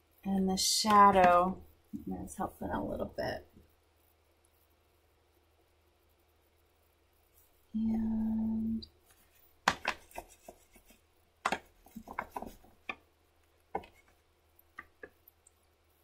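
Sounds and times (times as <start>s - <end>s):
drawing tools knocking on tabletop: 13.7s - 14.0s.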